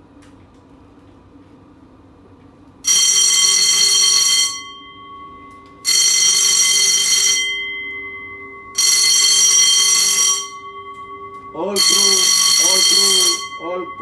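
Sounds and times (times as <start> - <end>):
ship alarm ringing: 2.8 - 14.0.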